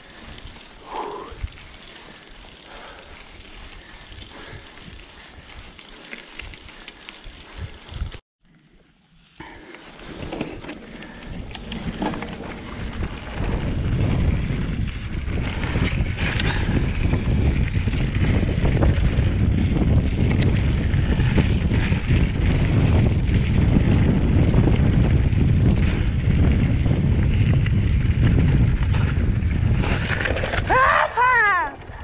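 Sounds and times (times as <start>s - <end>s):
bike clicks and rattles: 0.0s - 8.2s, 9.3s - 32.0s
bike tyre noise: 0.0s - 32.0s
wind rushing over microphone: 10.2s - 32.0s.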